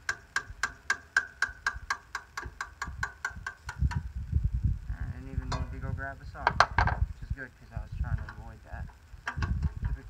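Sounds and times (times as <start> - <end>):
steady ringing clicks: 0.0 - 4.2, 5.4 - 10.0
low handling rumble: 3.8 - 10.0.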